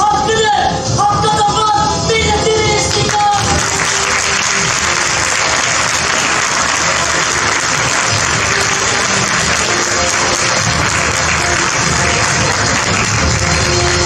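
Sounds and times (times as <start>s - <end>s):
faint music: 0.0s - 14.0s
audience applauding: 2.9s - 14.0s.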